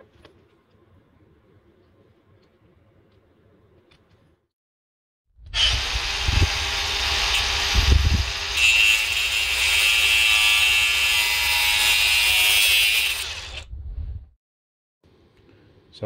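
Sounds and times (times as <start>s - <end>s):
angle grinder cutting metal: 5.5s - 13.6s.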